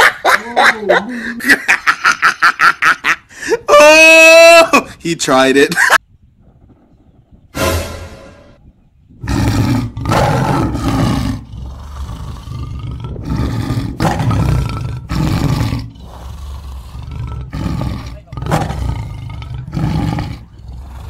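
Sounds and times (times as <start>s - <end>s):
tiger roaring: 9.2s - 21.0s.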